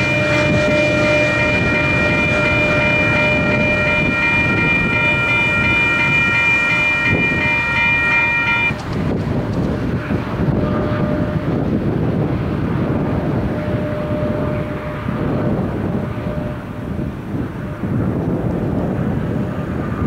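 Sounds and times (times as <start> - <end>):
locomotive air horn chord: 0.0 - 8.8, 9.8 - 11.8, 13.2 - 18.3.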